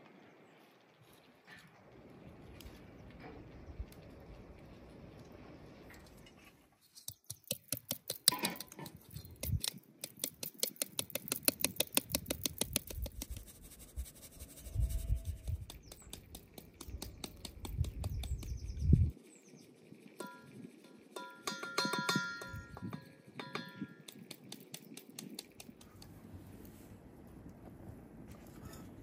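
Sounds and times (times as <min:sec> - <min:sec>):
flour sieve rapid ticking: 0:07.1 - 0:14.5, 0:15.4 - 0:19.2, 0:19.9 - 0:26.1.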